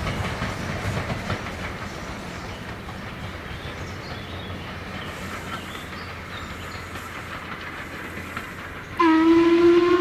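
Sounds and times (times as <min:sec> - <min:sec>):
steam train rumbling: 0:00.0 - 0:10.0
steam locomotive whistle: 0:09.0 - 0:10.0.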